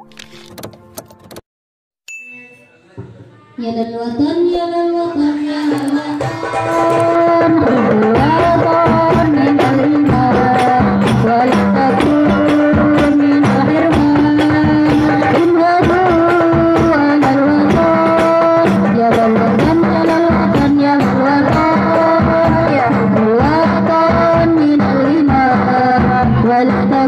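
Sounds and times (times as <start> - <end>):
woman singing into a microphone: 3.6 - 27.0.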